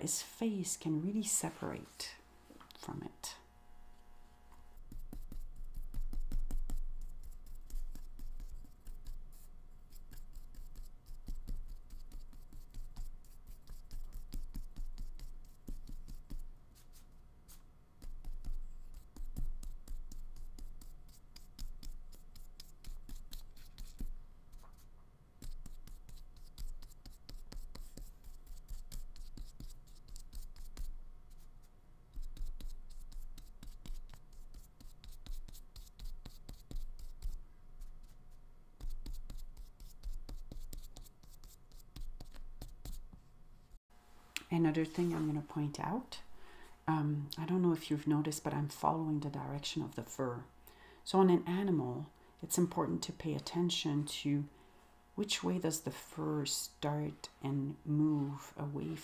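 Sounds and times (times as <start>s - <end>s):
paintbrush brushing on paper: 4.8s - 43.2s, 44.7s - 45.7s.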